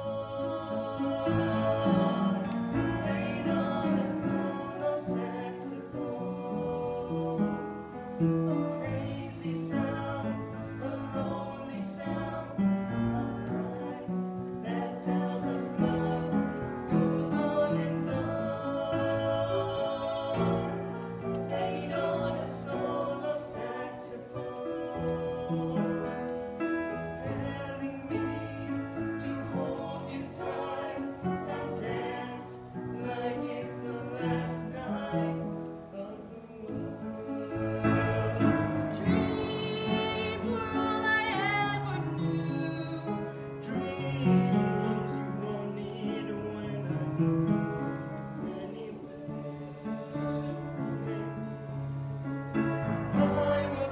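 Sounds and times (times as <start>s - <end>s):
duet singing: 0.0s - 53.9s.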